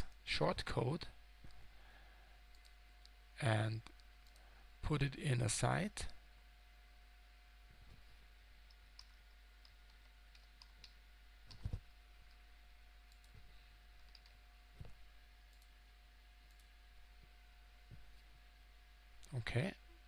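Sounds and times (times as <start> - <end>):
keyboard typing: 8.7 - 12.4, 13.1 - 14.4.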